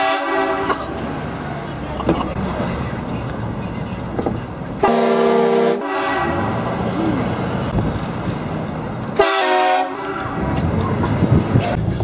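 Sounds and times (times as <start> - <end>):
train horn blasting: 0.0 - 0.8, 4.8 - 6.7, 9.2 - 10.5.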